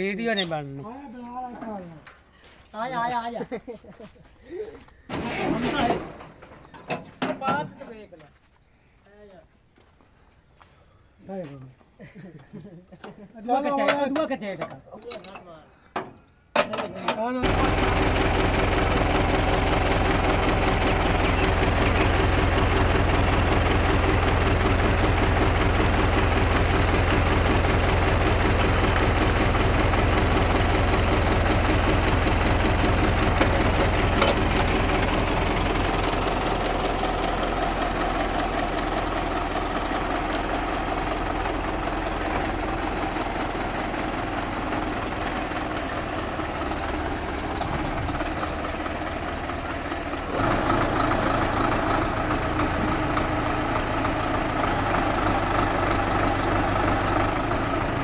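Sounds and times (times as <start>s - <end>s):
tractor diesel engine running: 5.0s - 7.7s, 17.4s - 58.0s.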